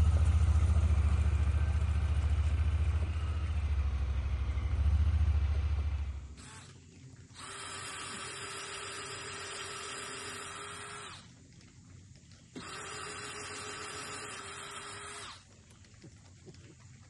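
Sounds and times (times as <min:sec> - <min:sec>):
power drill drilling into wood: 0:06.4 - 0:06.8, 0:07.4 - 0:11.3, 0:12.6 - 0:15.4.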